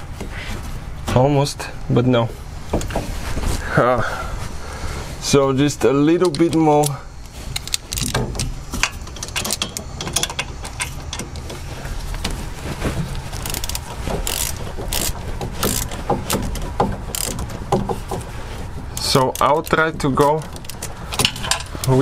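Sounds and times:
hand ratchet clicking: 0:06.2 - 0:11.6, 0:13.3 - 0:18.3, 0:18.9 - 0:22.0.

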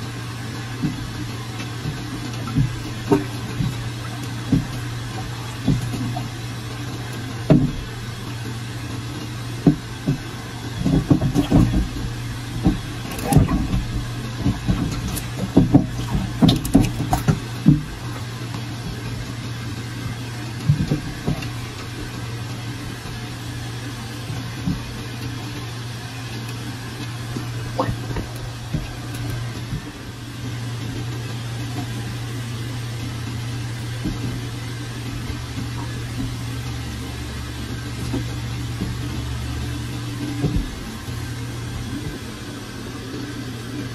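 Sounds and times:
steady low hum: 0:00.0 - 0:43.9
water sloshing and splashing: 0:00.0 - 0:43.9
dull thumps: 0:01.8 - 0:06.3, 0:09.6 - 0:19.0, 0:20.6 - 0:22.1, 0:27.4 - 0:30.1, 0:37.8 - 0:42.5.

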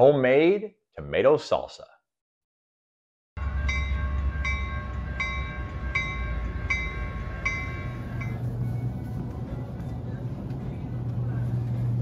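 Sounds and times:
railroad crossing bell ringing: 0:03.4 - 0:09.6
low rumble: 0:03.4 - 0:12.0.

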